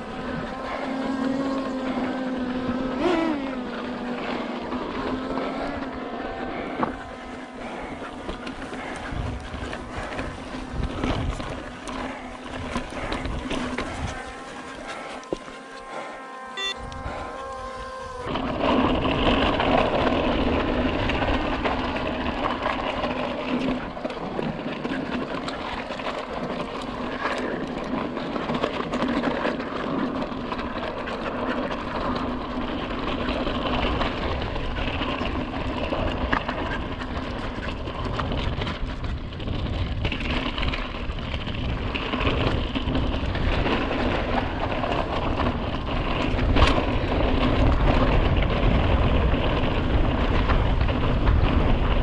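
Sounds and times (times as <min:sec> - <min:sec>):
wind noise on microphone: 0:00.0 - 0:15.4, 0:16.6 - 0:52.0
low hum: 0:00.0 - 0:28.4.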